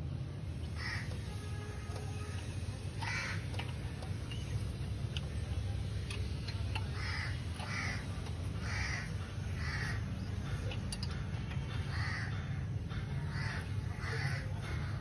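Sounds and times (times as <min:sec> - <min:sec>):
steady low hum: 0:00.0 - 0:15.0
crows cawing: 0:00.7 - 0:02.3, 0:03.0 - 0:03.8, 0:06.9 - 0:10.6, 0:11.7 - 0:15.0.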